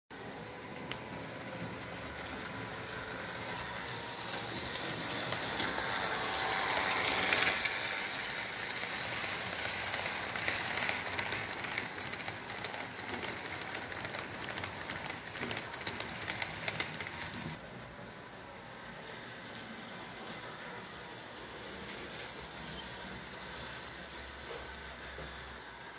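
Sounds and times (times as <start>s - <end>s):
model train running on track: 0.2s - 25.9s
wagons clicking on track: 1.6s - 17.6s.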